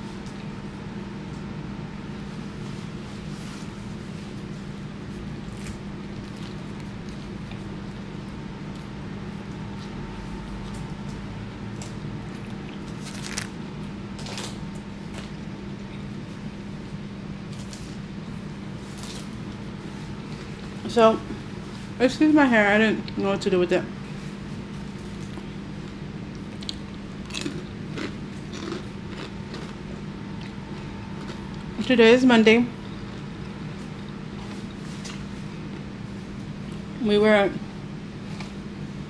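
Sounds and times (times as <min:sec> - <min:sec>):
steady low hum: 0:00.0 - 0:39.0
paper wrapper crinkle: 0:12.9 - 0:13.6
chewing mouth sounds: 0:25.2 - 0:31.8, 0:32.7 - 0:35.9.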